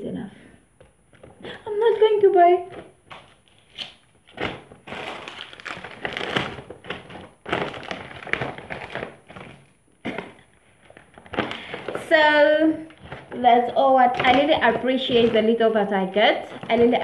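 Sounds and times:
paper bag rustling: 2.6s - 15.8s.

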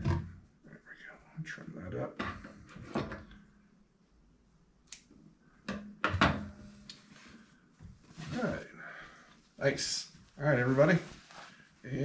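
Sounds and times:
cloth rustling: 6.6s - 8.7s, 9.4s - 12.0s.

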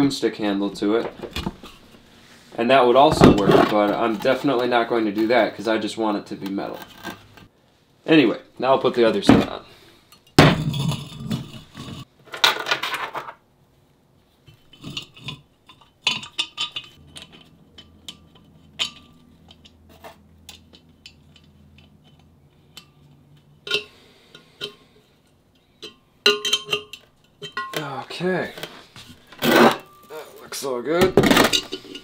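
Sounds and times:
metal clanking: 3.0s - 4.4s, 14.5s - 24.8s, 25.6s - 28.7s, 31.0s - 32.0s
small hardware clinking: 25.5s - 27.8s.

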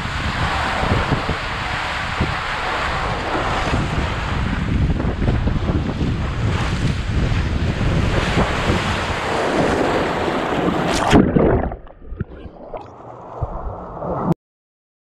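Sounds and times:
wind buffeting camera: 0.0s - 12.8s, 13.4s - 14.3s
water rushing: 0.0s - 14.4s
loud splash into pool: 6.0s - 13.8s
muffled underwater gurgle: 10.3s - 14.4s.

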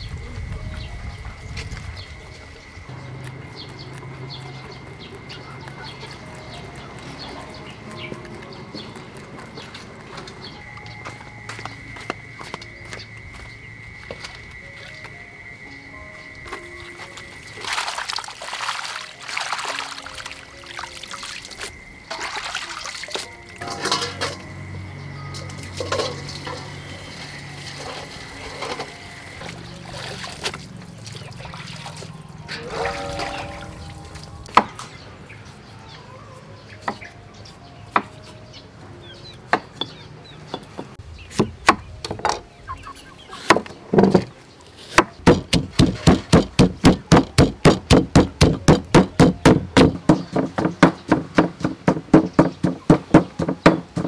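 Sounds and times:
hands swishing water: 17.0s - 23.4s
pestle pounding in stone mortar: 45.2s - 54.0s.

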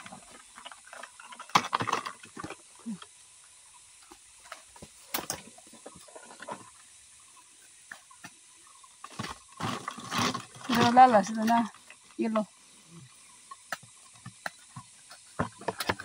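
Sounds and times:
rustling through leafy undergrowth: 8.8s - 13.0s.

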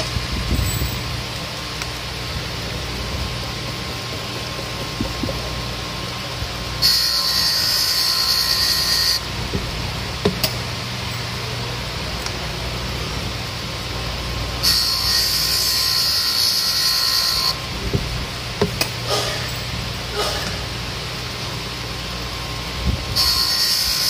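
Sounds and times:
machine motor hum: 1.6s - 16.4s
valve grinding against wheel: 6.7s - 9.4s.

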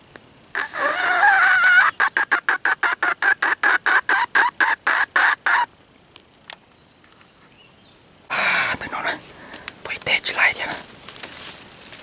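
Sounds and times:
chicken clucking rapidly: 0.6s - 5.7s.

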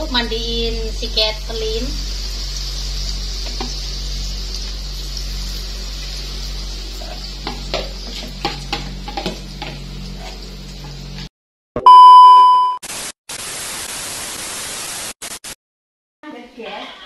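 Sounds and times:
batter sizzling in hot oil: 0.0s - 11.3s, 12.9s - 15.1s
spoon scraping and tapping bowl: 7.4s - 10.4s.

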